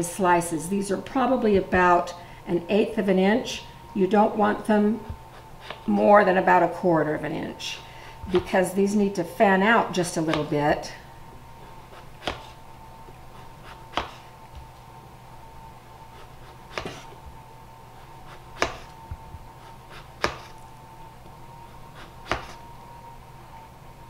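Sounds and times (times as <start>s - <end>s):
knife slicing through squash: 11.7s - 12.6s, 13.3s - 14.3s, 16.1s - 17.2s, 18.0s - 19.0s, 19.6s - 20.6s, 21.9s - 22.6s.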